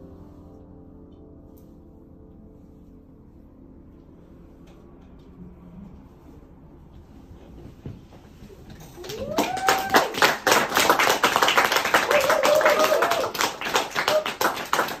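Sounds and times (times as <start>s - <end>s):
audience clapping: 9.0s - 15.0s.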